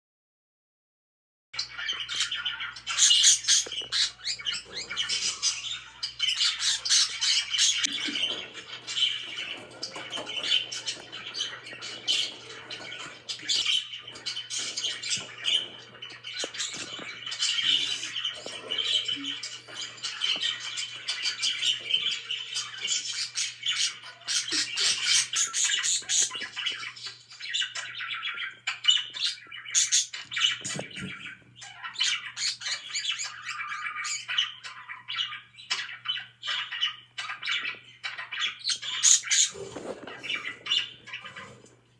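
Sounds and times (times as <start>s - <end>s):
budgerigars chattering: 1.6s - 41.8s.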